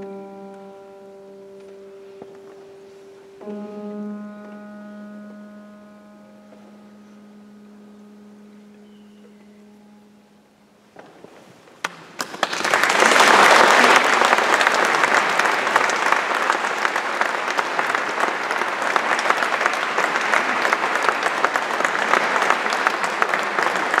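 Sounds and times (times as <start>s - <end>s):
audience applauding: 11.8s - 24.0s.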